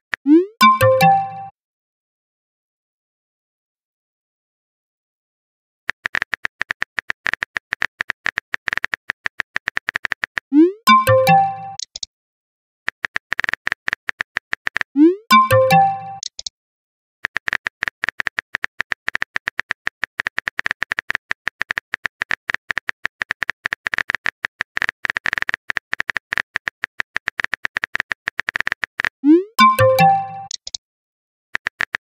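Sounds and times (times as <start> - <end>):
rising message sent chime: 10.6 - 11.8, 15.0 - 16.2, 29.3 - 30.5.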